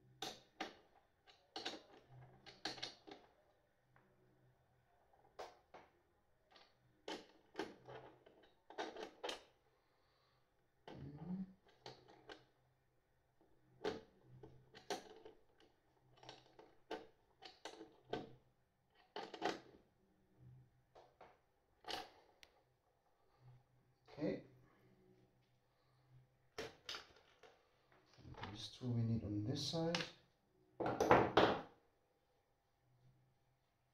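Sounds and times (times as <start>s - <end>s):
small parts clicking and tapping: 0.1s - 3.4s, 5.1s - 9.6s, 10.8s - 12.5s, 13.4s - 19.8s.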